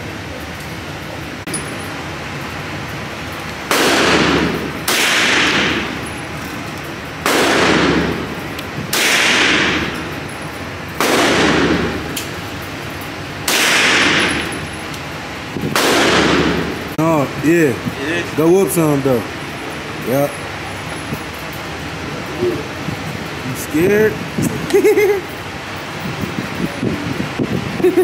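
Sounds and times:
pistol shots echoing: 3.7 - 6.2, 7.2 - 10.2, 10.9 - 12.3, 13.4 - 14.7, 15.7 - 16.9.

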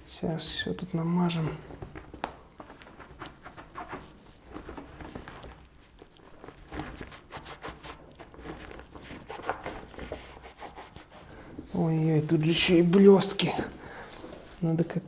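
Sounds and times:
hands handling rubber: 1.7 - 11.7
sponge rubbing on tyre: 7.0 - 11.4.

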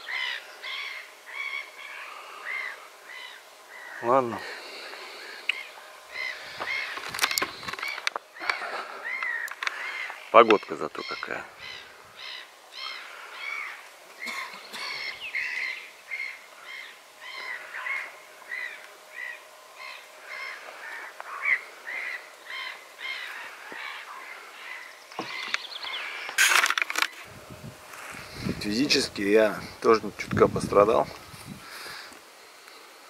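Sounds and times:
birds calling: 0.0 - 33.0
rustling noise: 6.4 - 8.3, 26.3 - 32.1.

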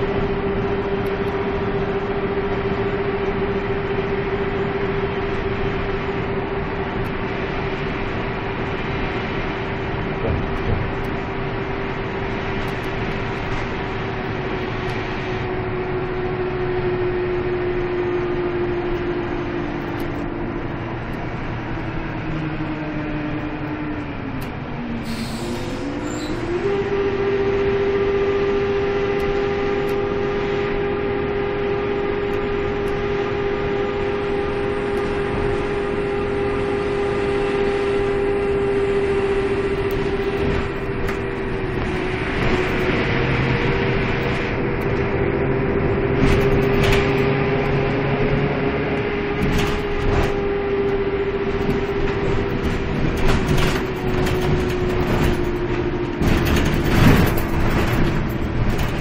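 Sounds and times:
bus running gear whine: 0.0 - 59.0
rolling road noise: 0.0 - 59.0
bodywork rattling and knocking: 52.4 - 59.0.

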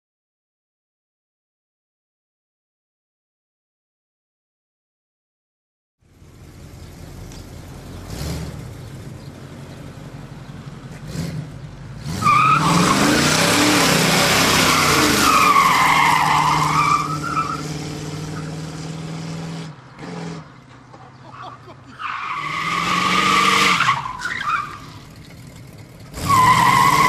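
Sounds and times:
car engine revving: 6.0 - 20.5, 22.1 - 27.0
tyres squealing: 12.1 - 18.6, 21.0 - 25.4, 26.1 - 27.0.

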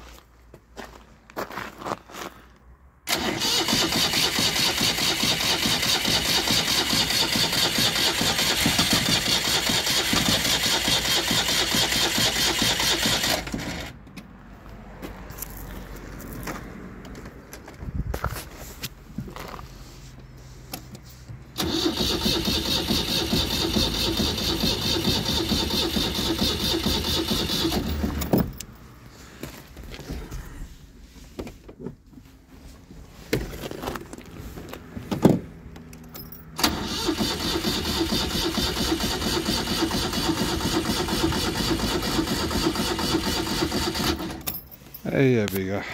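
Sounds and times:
starter motor cranking engine: 3.1 - 14.0, 21.6 - 28.4, 36.6 - 44.5.

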